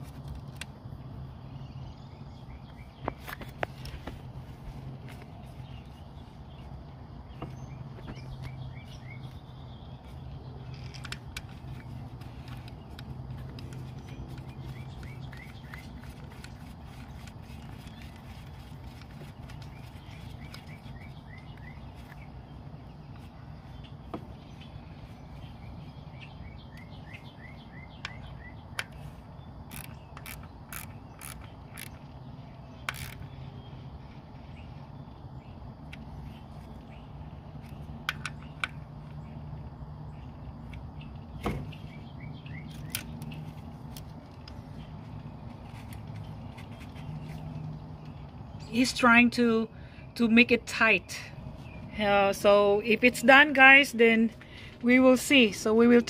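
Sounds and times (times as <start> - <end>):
bird chirping: 1.3 - 4.2, 5.0 - 56.0
clicks and knocks of ignition coil: 10.6 - 22.2, 27.9 - 33.5
socket ratchet turning: 29.7 - 32.1, 32.8 - 33.3.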